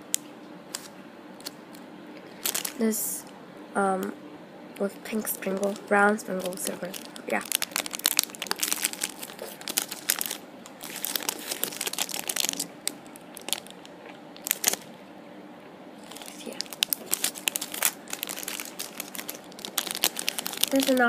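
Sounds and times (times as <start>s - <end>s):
plastic bags crinkling: 2.2s - 3.2s, 4.8s - 15.0s, 16.0s - 21.0s.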